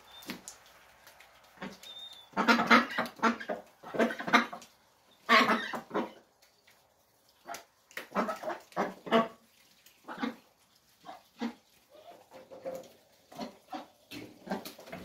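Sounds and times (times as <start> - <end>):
ducks quacking: 1.4 - 6.3, 7.4 - 9.4, 10.0 - 15.0.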